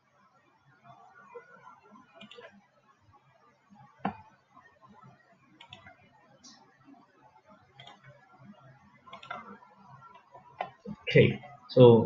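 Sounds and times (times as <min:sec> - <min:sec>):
low room noise: 0:00.0 - 0:12.0
faint computer mouse clicks: 0:02.2 - 0:02.5, 0:05.6 - 0:06.6, 0:07.8 - 0:08.1.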